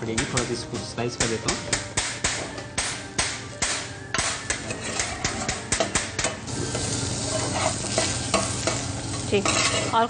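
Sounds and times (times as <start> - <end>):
frying sizzle: 4.2 - 10.0.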